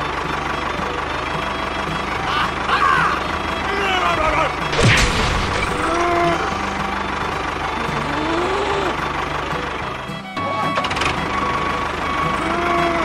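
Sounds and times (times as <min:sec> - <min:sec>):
tractor engine running: 0:00.0 - 0:13.0
cow mooing: 0:08.0 - 0:08.9.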